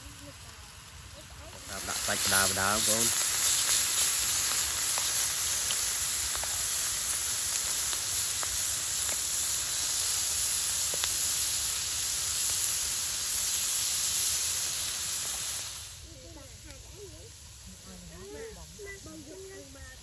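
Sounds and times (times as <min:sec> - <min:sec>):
small pops and crackles: 0:00.0 - 0:16.0
food sizzling in a pan: 0:00.0 - 0:20.0.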